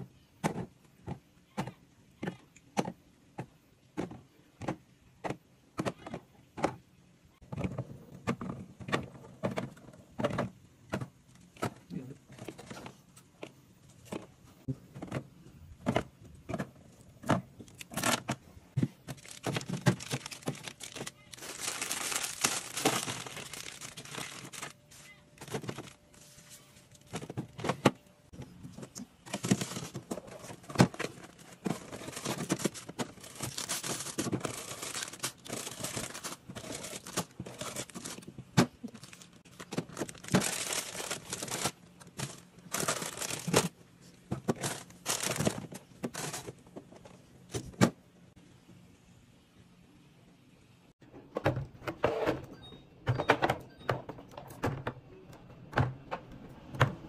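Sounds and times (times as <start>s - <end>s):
plastic packaging crinkling: 19.0s - 27.4s, 29.2s - 43.8s, 44.5s - 46.6s.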